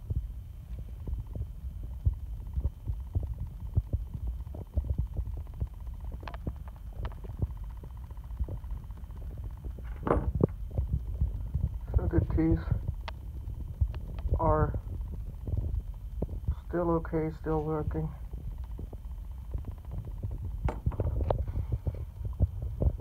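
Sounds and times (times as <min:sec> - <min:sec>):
phone microphone handling noise: 0:09.2 - 0:16.7, 0:18.3 - 0:23.0.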